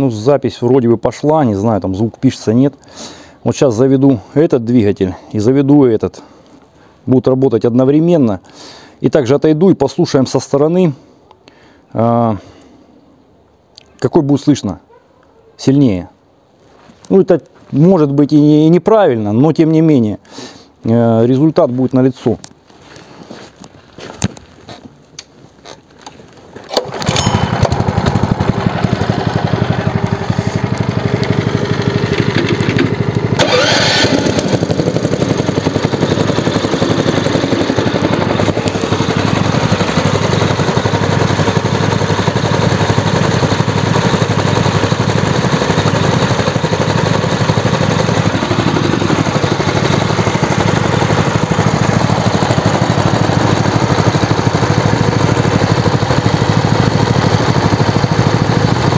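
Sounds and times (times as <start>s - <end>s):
engine pull-started and running: 26.6s - 58.9s.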